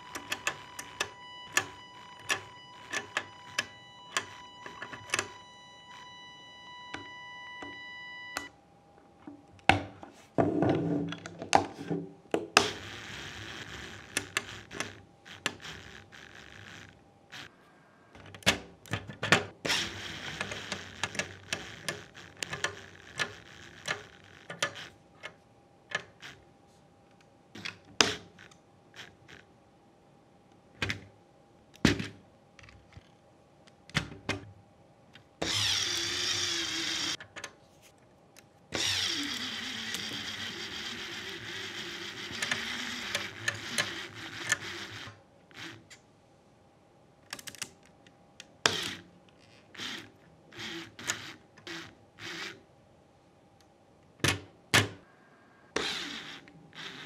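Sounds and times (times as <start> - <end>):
toy gears clicking and knocking: 0.0 - 5.4, 12.6 - 17.5, 19.7 - 24.9, 35.4 - 37.2, 38.7 - 45.9, 48.6 - 52.6, 55.8 - 57.0
rattling motor whir: 12.6 - 17.5, 35.4 - 37.2, 38.8 - 45.8, 49.8 - 52.6, 55.8 - 57.0.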